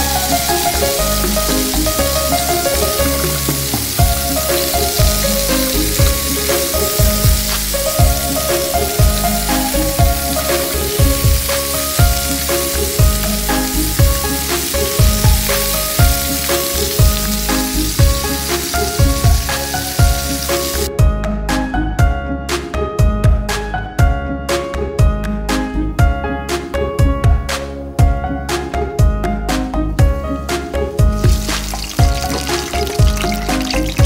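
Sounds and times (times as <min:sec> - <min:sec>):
food sizzling in a frying pan: 0:00.0 - 0:20.9, 0:31.2 - 0:34.0
background music with a beat: 0:00.0 - 0:34.0.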